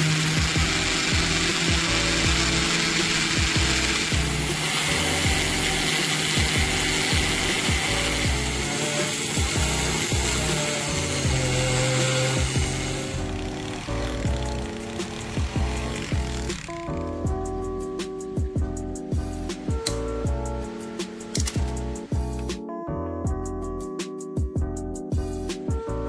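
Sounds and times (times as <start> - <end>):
power tool gritty hiss: 0.0 - 17.0
background music with beat: 14.3 - 26.0.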